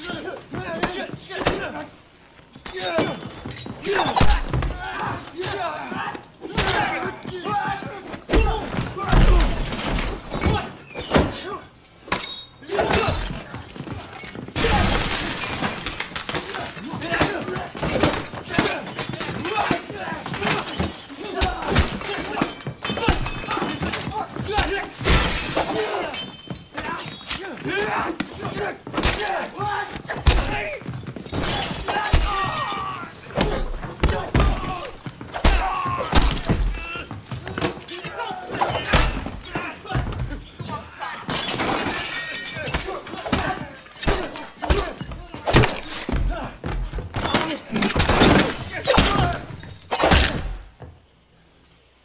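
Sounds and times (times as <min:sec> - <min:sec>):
glass breaking: 0:09.1 - 0:11.4, 0:14.1 - 0:27.5, 0:30.2 - 0:39.4, 0:41.3 - 0:50.9
glass cases shattering: 0:14.1 - 0:24.2, 0:25.0 - 0:27.5, 0:30.2 - 0:39.5, 0:41.3 - 0:51.0
hard thuds and blows: 0:27.7 - 0:37.9.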